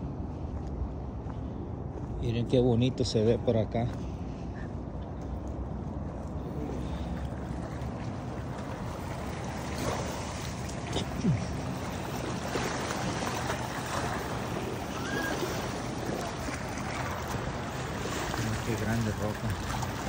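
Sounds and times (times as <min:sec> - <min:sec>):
water lapping against boulders: 0:06.0 - 0:20.0.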